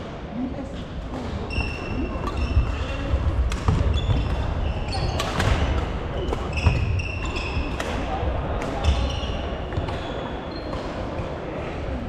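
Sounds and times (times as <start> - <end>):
rackets hitting shuttlecocks: 1.2 - 11.4
shoes squeaking on wooden floor: 3.7 - 7.7.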